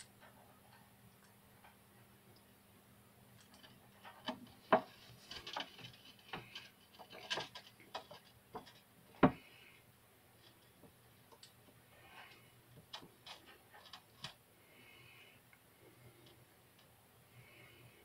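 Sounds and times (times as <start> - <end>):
turtle feeding clicks and knocks: 3.4 - 9.5.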